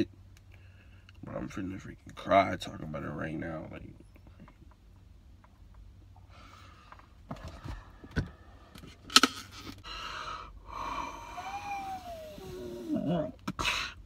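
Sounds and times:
man breathing heavily and sighing: 9.8s - 14.0s
man moaning: 10.7s - 13.9s.

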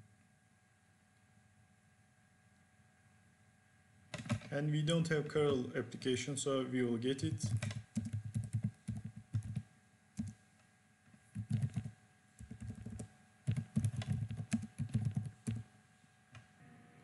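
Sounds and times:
computer keyboard typing: 4.2s - 4.5s, 7.4s - 9.6s, 10.2s - 10.4s, 11.3s - 15.6s.

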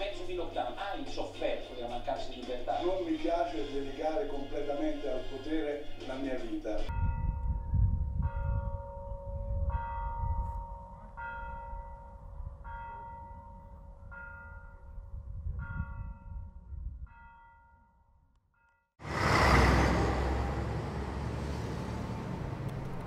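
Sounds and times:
church bell tolling: 6.9s - 17.9s.

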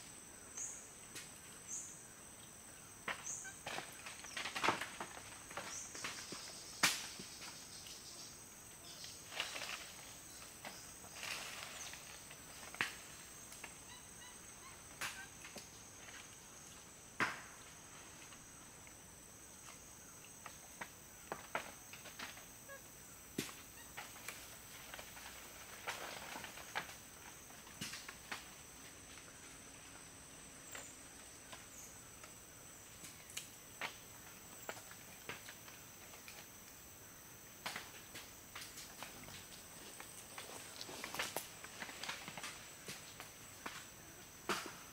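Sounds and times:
insects droning: 0.0s - 44.9s
rustles and snaps in foliage: 3.1s - 8.2s, 8.8s - 14.0s, 23.3s - 30.1s, 30.7s - 36.8s, 37.5s - 44.9s
high-pitched insect trill: 5.6s - 16.9s.

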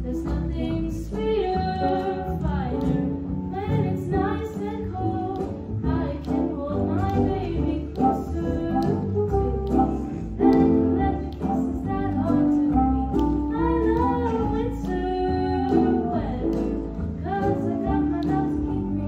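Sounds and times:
instrumental accompaniment with bass: 0.0s - 19.0s.

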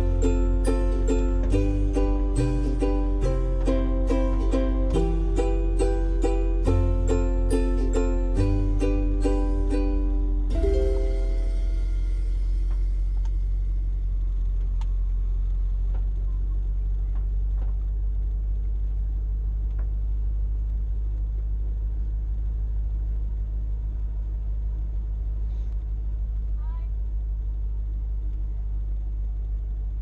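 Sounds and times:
ukulele music: 0.0s - 14.0s
car engine rumbling: 0.0s - 30.0s.

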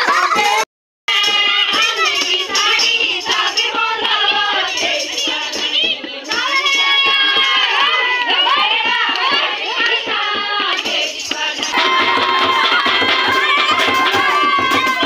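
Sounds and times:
hand drum beats: 0.0s - 15.0s
women and children singing: 0.0s - 15.0s
people clapping: 5.8s - 15.0s.

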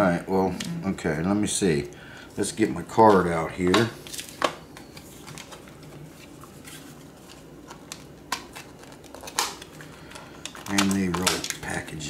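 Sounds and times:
plastic packaging crinkling: 3.0s - 12.0s
plastic clicks and cracks: 7.8s - 11.6s.

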